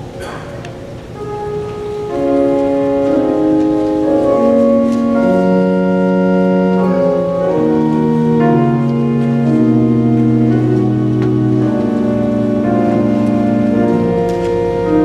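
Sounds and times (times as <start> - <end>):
organ playing sustained chords: 0.0 - 15.0.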